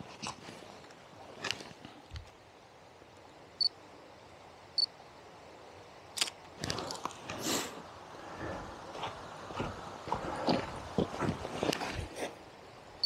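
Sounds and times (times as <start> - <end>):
rustling and crunching: 6.2 - 7.6, 8.3 - 12.4.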